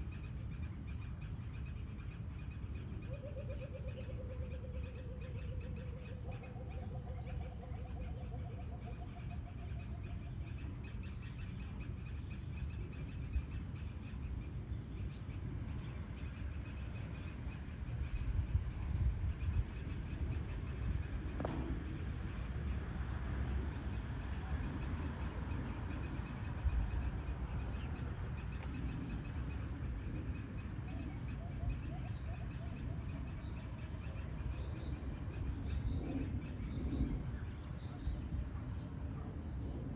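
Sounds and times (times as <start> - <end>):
insects droning and chirping: 0.0 - 39.9
low background rumble: 10.4 - 39.9.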